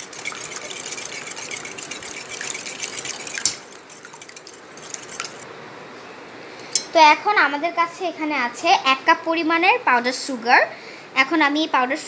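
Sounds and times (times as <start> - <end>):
whisk beating eggs in bowl: 0.0 - 5.4.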